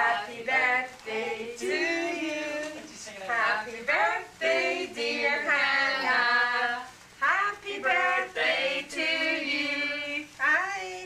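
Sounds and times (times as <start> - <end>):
woman singing: 0.0 - 11.0.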